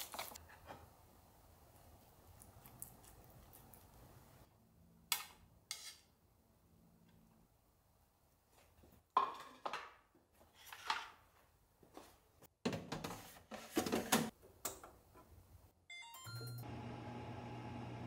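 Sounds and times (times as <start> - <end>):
low appliance hum: 16.4 - 18.0.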